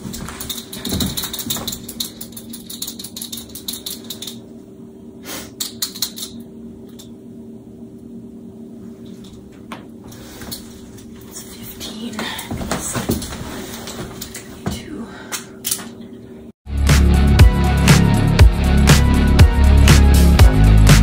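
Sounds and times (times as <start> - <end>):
steady low hum: 0.0 - 16.6.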